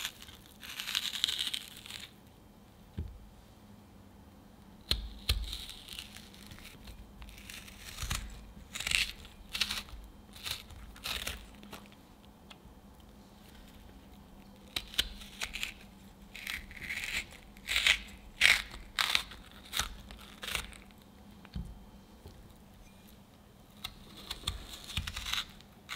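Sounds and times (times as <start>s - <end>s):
melon baller scraping fruit: 0.0s - 2.2s, 4.9s - 12.0s, 13.3s - 21.0s, 23.7s - 25.9s.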